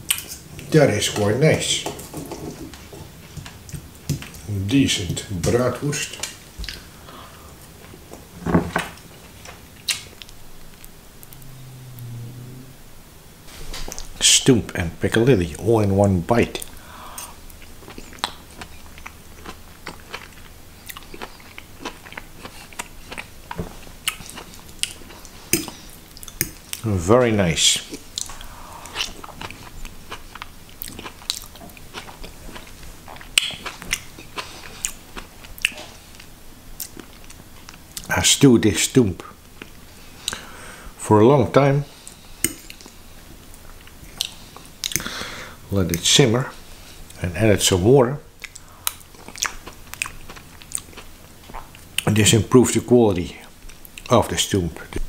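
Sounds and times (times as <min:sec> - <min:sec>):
low steady hum: 0:00.0 - 0:55.0
person chewing soft food: 0:16.6 - 0:26.8, 0:27.9 - 0:38.1, 0:41.9 - 0:45.6, 0:48.4 - 0:52.1.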